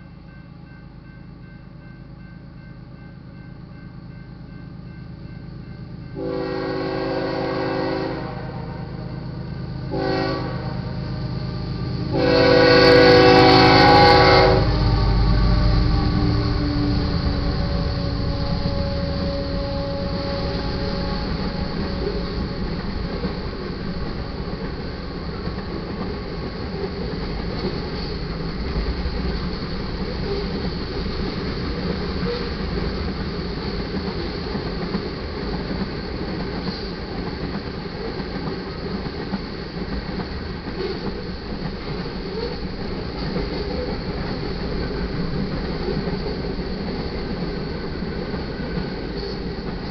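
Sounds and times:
locomotive low rumble: 0.0s - 49.9s
locomotive air horn blasts: 6.2s - 9.2s, 9.9s - 11.2s, 12.1s - 22.6s.

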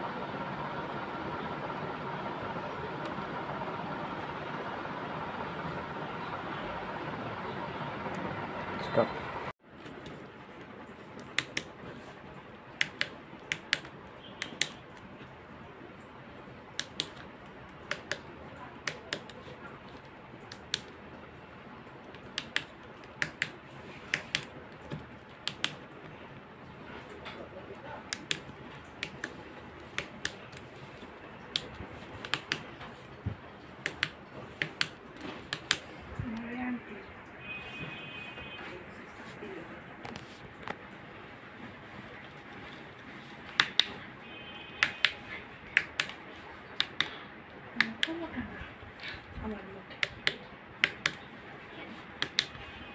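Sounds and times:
push-button switches clicking: 33.8s - 35.9s, 45.8s - 46.2s.

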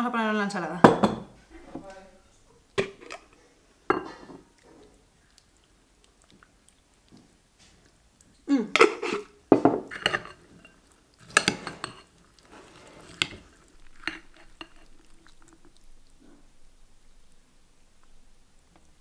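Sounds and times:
wet vegetables shuffling: 1.4s - 19.0s.

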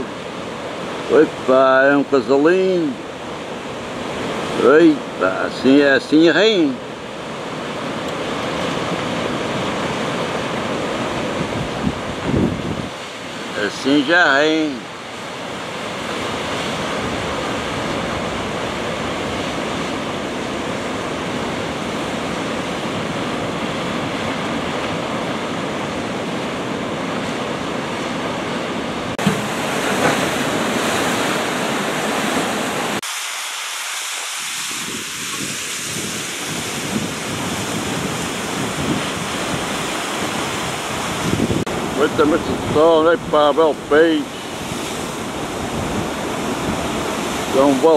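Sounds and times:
sea surf breaking over rocks: 0.0s - 47.9s
wind buffeting microphone: 6.9s - 13.5s, 34.5s - 47.9s.

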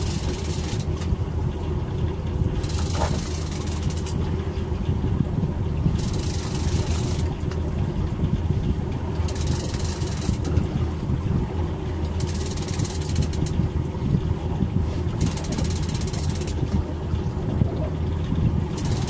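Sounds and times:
outboard motors droning: 0.0s - 19.0s.

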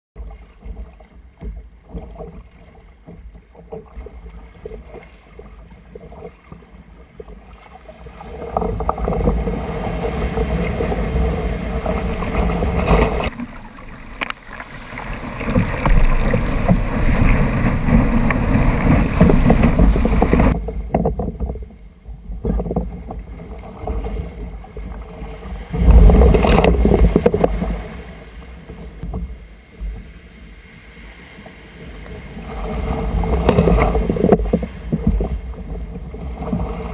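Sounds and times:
paddle splashes: 0.2s - 36.9s
water rushing along hull: 0.2s - 36.9s
wind buffeting microphone: 15.2s - 21.8s.

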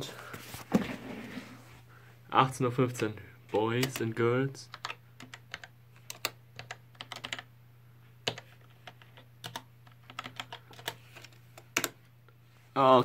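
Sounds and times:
steady low hum: 0.0s - 13.0s
keyboard keys clicking: 4.7s - 7.4s, 8.2s - 11.0s.

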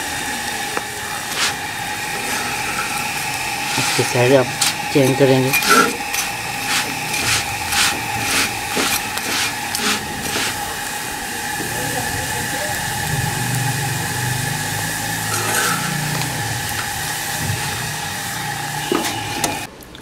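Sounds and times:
hot pan and stove hissing: 0.0s - 19.7s
metal spatula tapping and scraping: 2.3s - 10.6s
low rumble: 10.0s - 18.7s.

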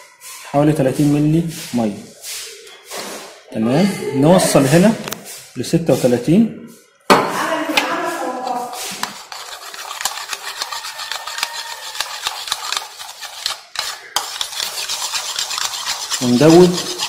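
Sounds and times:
metal spoon scraping glass bowl: 7.9s - 17.0s.

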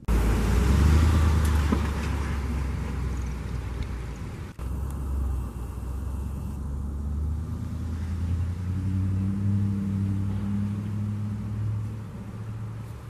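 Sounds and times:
vehicle engine rumbling: 0.0s - 13.0s
low hum: 3.9s - 12.4s.

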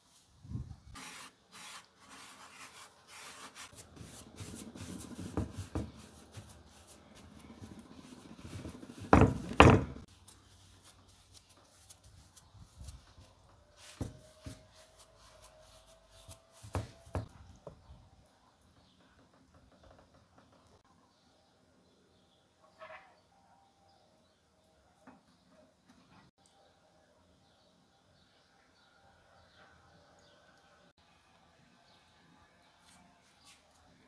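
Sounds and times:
hands rubbing dough on board: 1.0s - 17.3s
dough thumps: 3.8s - 10.1s, 16.6s - 17.8s.

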